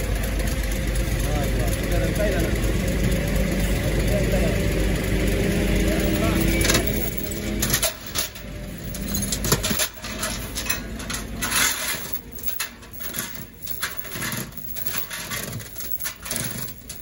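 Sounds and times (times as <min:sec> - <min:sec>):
steel chain rattling and scraping: 0:05.2 - 0:17.0.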